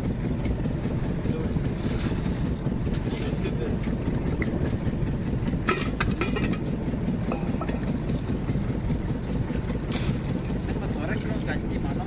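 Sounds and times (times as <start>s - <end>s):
steady low rumble: 0.0s - 12.0s
steel bowls and pots clinking: 5.6s - 6.7s.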